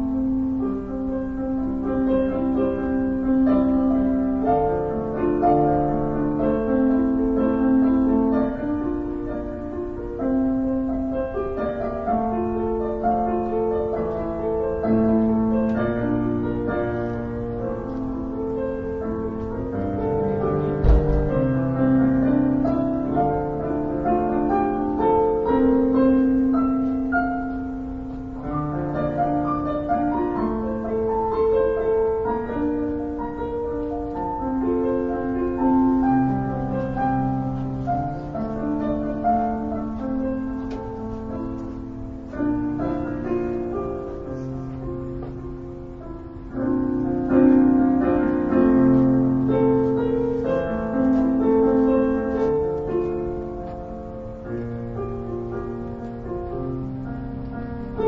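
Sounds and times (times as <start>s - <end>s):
slow piano playing: 0.0s - 58.0s
single thump: 20.8s - 21.5s.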